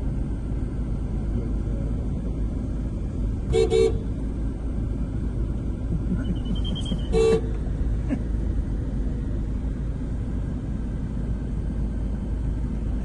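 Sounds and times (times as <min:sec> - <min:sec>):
street traffic rumble: 0:00.0 - 0:13.0
vehicle horn toot: 0:03.5 - 0:04.1, 0:06.4 - 0:07.6.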